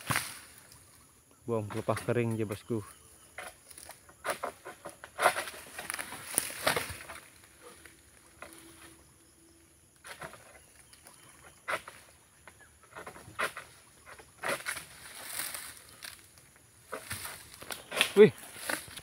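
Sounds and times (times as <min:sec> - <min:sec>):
sickle hacking dry palm frond: 0:00.0 - 0:00.6, 0:03.4 - 0:08.6, 0:11.6 - 0:12.1, 0:12.9 - 0:19.0.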